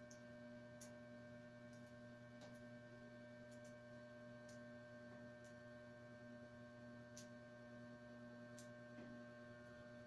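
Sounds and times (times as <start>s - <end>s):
electrical hum: 0.0s - 10.0s.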